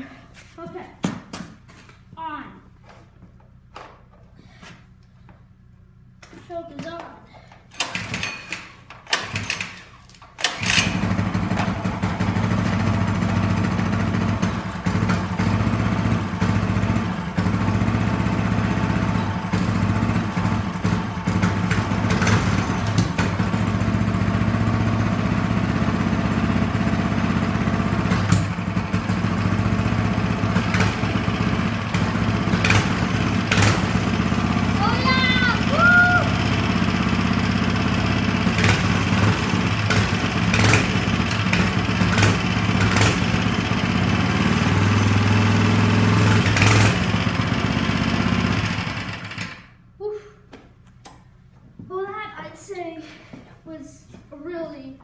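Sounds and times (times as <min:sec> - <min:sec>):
small engine running: 0:07.4 - 0:49.8
engine pull-start cranking: 0:07.6 - 0:26.1, 0:27.2 - 0:35.6, 0:36.3 - 0:49.8.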